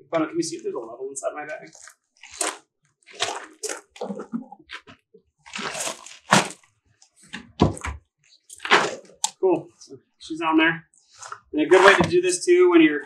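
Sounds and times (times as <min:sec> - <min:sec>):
rustling and handling noises: 0:01.5 - 0:09.4, 0:11.0 - 0:12.3.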